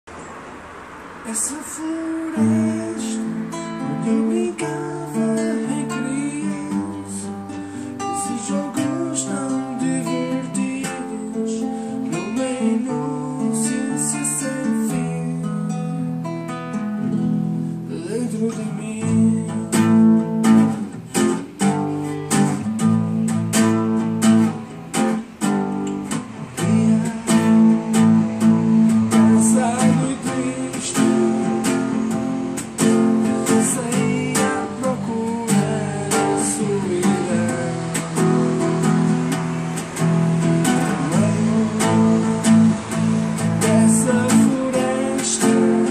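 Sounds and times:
acoustic guitar strumming: 0.1s - 45.9s.

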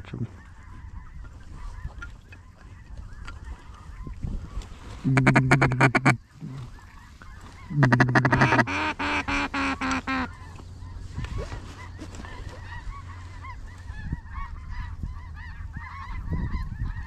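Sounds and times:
faint waterfowl calls: 0.0s - 17.0s
duck call quacks: 5.1s - 6.2s, 7.7s - 10.3s.

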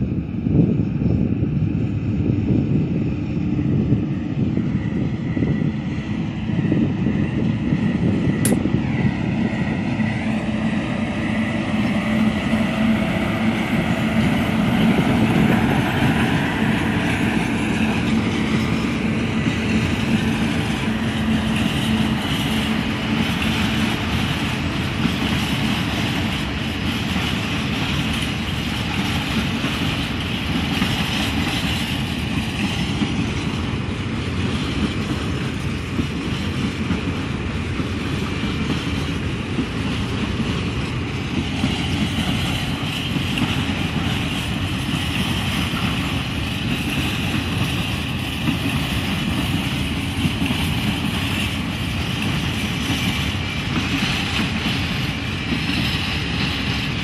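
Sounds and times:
freight train wheels clattering on rails: 2.2s - 57.0s.

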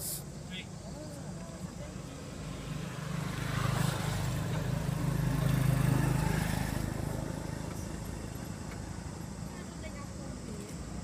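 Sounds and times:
vehicle engine passing: 1.7s - 9.4s.

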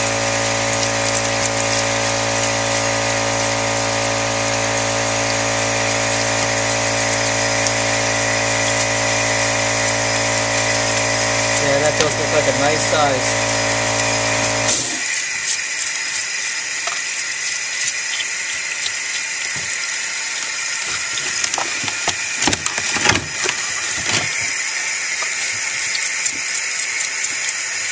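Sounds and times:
hose water running into a sink: 0.0s - 27.9s
humming motor: 0.0s - 27.9s
toothbrush scrubbing rock: 0.0s - 27.9s.

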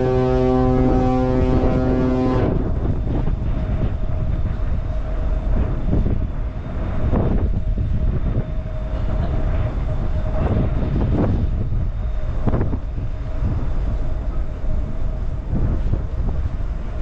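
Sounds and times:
ship engine rumble: 0.0s - 17.0s.

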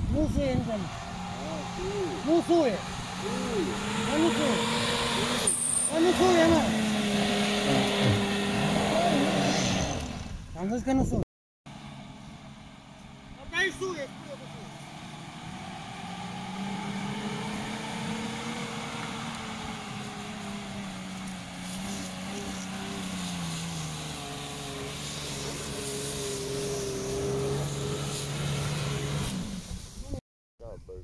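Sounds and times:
engine working hard under load: 0.0s - 10.5s, 11.7s - 30.0s.

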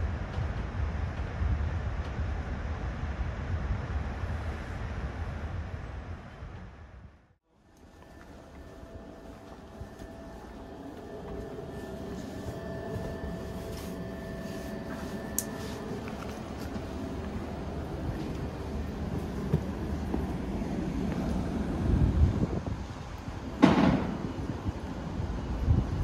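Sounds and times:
train coach hum: 0.0s - 26.0s
faint steady tones: 7.5s - 26.0s.

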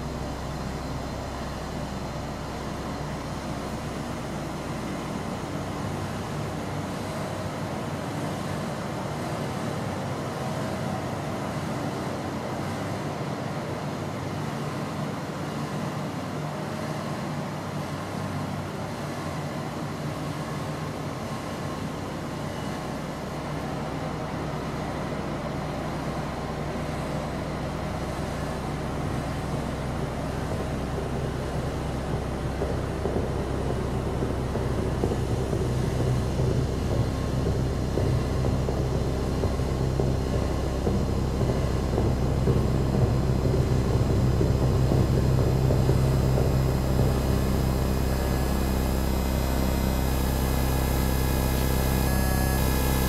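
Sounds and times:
deep rumble: 0.0s - 7.7s, 24.2s - 53.0s
noisy hiss: 0.0s - 10.4s, 20.3s - 53.0s
low ambient drone: 0.0s - 13.7s, 20.8s - 53.0s.

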